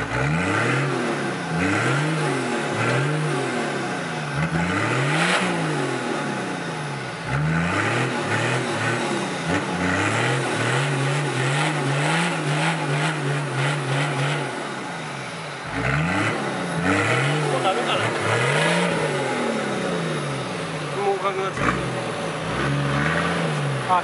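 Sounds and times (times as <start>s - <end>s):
engine revving: 0.0s - 24.0s.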